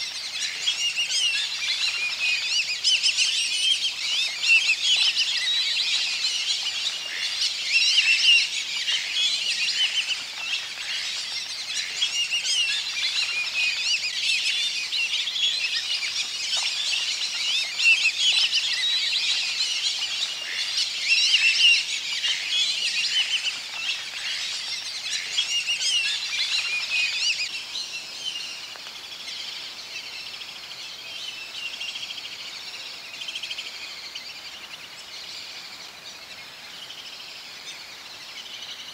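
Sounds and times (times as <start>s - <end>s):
chorus of bird calls: 0.0s - 38.9s.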